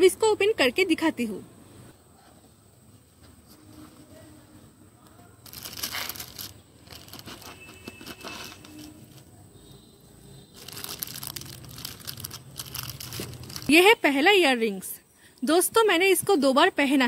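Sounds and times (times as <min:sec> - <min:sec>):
bubble wrap rustling and crinkling: 0:05.4 - 0:09.4, 0:10.5 - 0:13.8.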